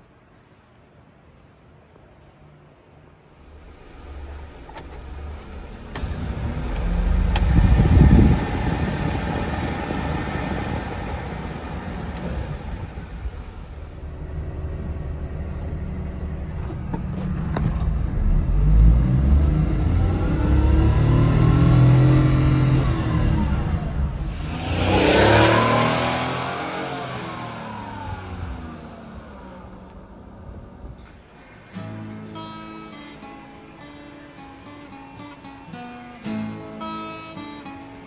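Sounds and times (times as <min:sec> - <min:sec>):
fan and engine noise: 0:00.0 - 0:36.7
engine revving: 0:03.5 - 0:30.0.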